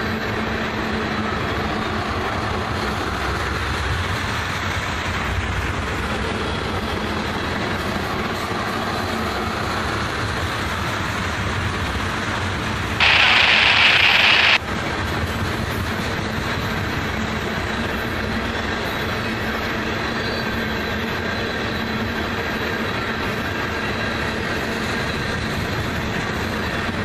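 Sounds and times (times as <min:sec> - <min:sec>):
freight train wheels rumbling on rail: 0:00.0 - 0:27.0
loud hiss: 0:13.0 - 0:14.6.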